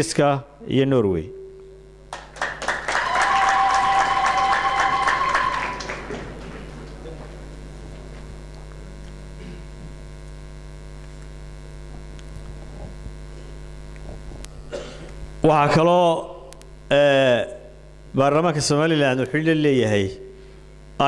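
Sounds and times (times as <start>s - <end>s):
electrical mains hum: 0.0s - 21.0s
high held tone: 1.1s - 2.1s
applause: 2.1s - 7.6s.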